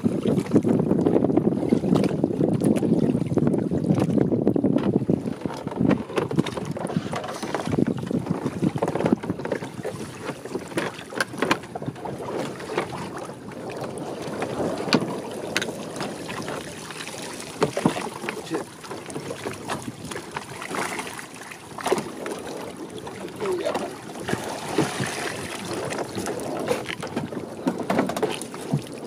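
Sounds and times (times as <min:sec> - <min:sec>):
wind buffeting microphone: 0:00.0 - 0:21.2, 0:21.8 - 0:29.0
seawater splashing and running off: 0:06.0 - 0:29.0.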